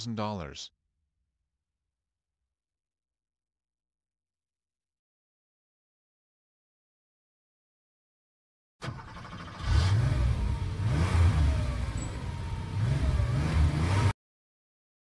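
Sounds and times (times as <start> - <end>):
car engine revving: 8.8 - 14.1.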